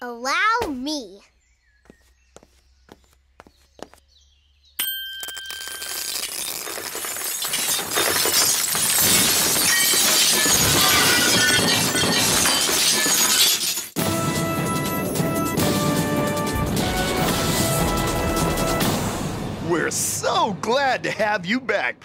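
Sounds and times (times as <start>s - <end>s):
glass cracking and shattering: 5.2s - 14.0s
music: 14.0s - 19.9s.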